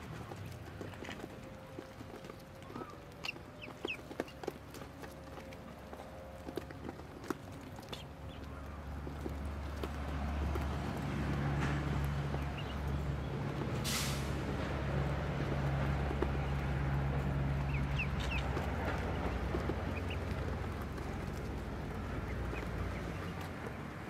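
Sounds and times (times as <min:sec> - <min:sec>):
ducklings peeping: 0:00.0 - 0:11.4, 0:12.0 - 0:13.8, 0:15.4 - 0:24.0
short hiss: 0:13.8 - 0:14.4.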